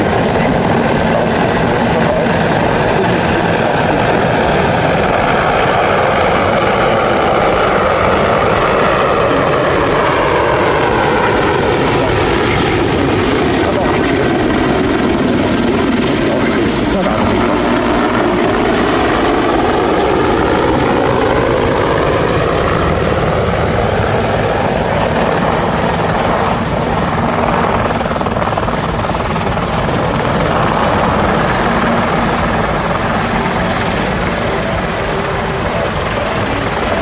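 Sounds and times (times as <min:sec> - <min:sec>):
helicopter flying past: 0:00.0 - 0:37.0.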